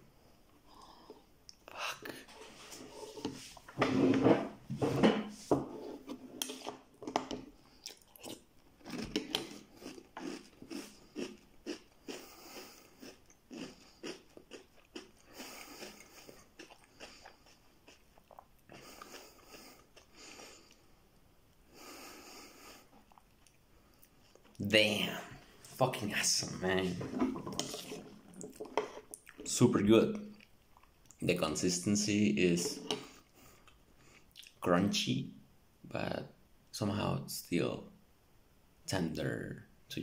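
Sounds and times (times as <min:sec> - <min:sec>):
person chewing crunchy cereal: 0:07.7 - 0:20.8.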